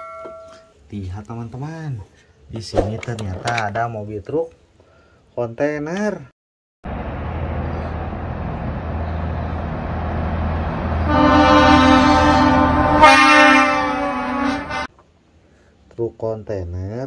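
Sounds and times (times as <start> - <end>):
vehicle engine humming: 6.8 - 14.9
loud horn blast: 10.9 - 14.9.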